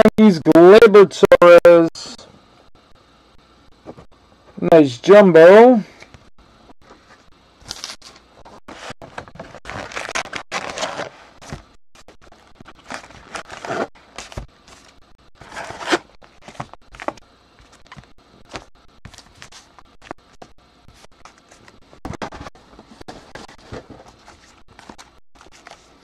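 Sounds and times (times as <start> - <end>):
card packs rustling and sliding: 7.7 - 11.7, 12.6 - 19.8, 21.2 - 26.0.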